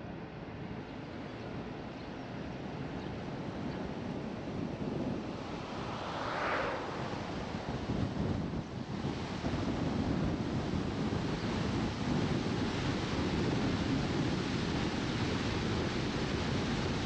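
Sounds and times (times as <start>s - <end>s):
car tyre and wind rush: 0.0s - 17.0s
wind on microphone: 0.0s - 17.0s
passing car whoosh: 4.4s - 9.0s.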